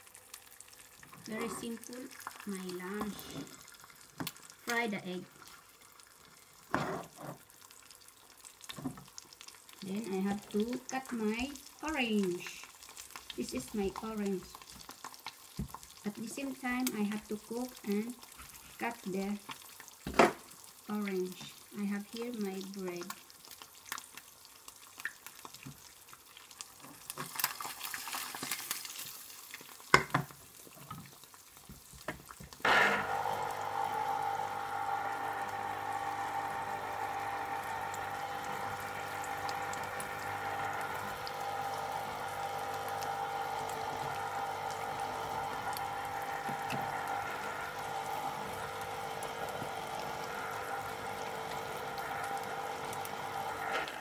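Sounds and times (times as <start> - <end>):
egg sizzling in a frying pan: 0.0 - 54.0
citrus juicer motor running: 2.9 - 3.6, 32.6 - 54.0.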